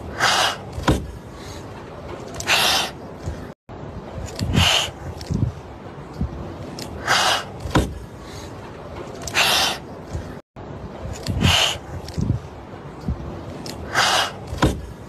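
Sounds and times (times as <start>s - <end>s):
kittens hissing: 4.5s - 5.0s, 9.3s - 9.8s, 11.4s - 11.8s.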